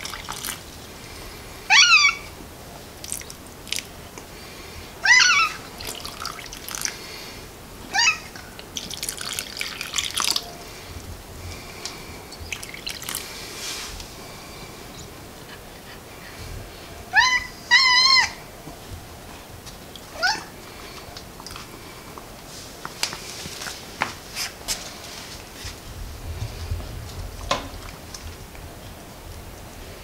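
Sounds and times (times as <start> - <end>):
cat meowing: 1.7 - 2.3, 5.0 - 5.7, 7.9 - 8.4, 17.1 - 18.4, 20.2 - 20.5.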